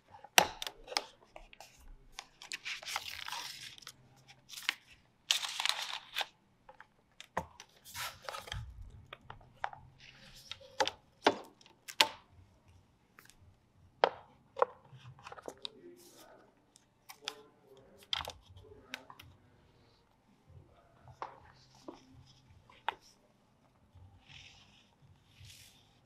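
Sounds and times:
packaging rustling: 0:00.8 - 0:06.8.

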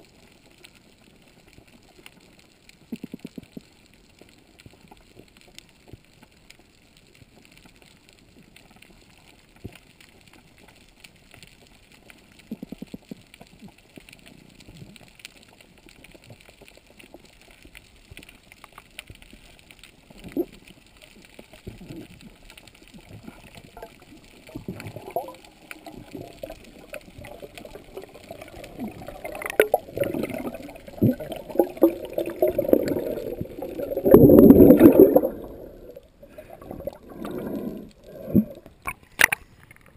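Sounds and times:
bubbles and churning water: 0:00.0 - 0:39.8
faint clicks underwater: 0:00.0 - 0:39.9
water sloshing and gurgling: 0:21.5 - 0:39.9.

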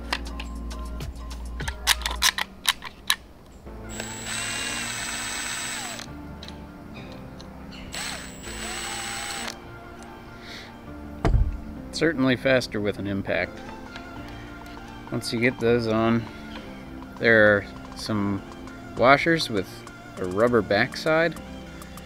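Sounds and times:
background music: 0:00.0 - 0:22.0
cordless drill spinning bolt: 0:03.9 - 0:06.1, 0:07.9 - 0:09.6.

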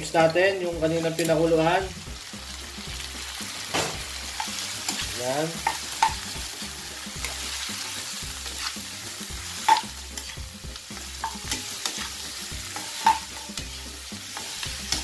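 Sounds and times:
meat sizzling in a pan: 0:00.0 - 0:15.0
metal spoon stirring: 0:04.3 - 0:06.3, 0:07.1 - 0:10.4, 0:11.0 - 0:15.0
spoon clinking against pan: 0:09.6 - 0:10.4, 0:11.2 - 0:13.7.

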